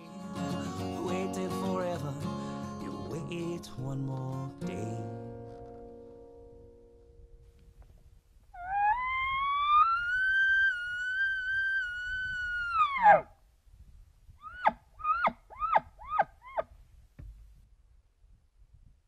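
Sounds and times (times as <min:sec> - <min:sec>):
elk bugling whistle: 0:08.6 - 0:13.3, 0:14.4 - 0:16.6.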